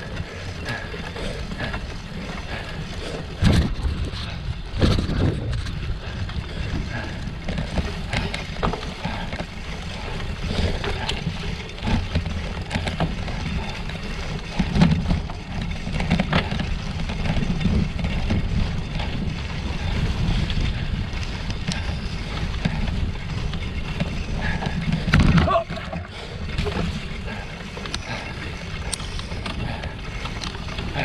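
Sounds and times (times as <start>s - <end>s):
bike rattling on rough ground: 0.0s - 31.0s
wind rumbling on microphone: 0.0s - 31.0s.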